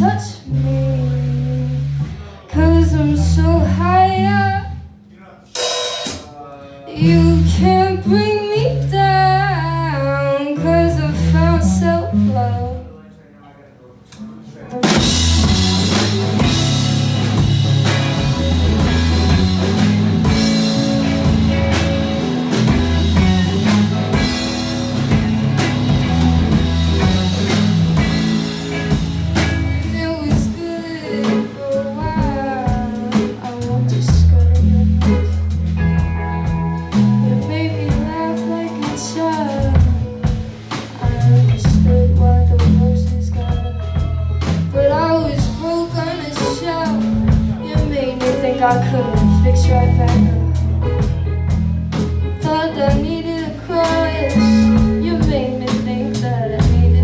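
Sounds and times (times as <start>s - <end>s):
live band playing instrumental: 0.0s - 12.9s, 14.6s - 57.0s
bending guitar melody: 7.0s - 12.9s, 14.7s - 57.0s
heavy bass line: 14.8s - 38.3s, 41.1s - 57.0s.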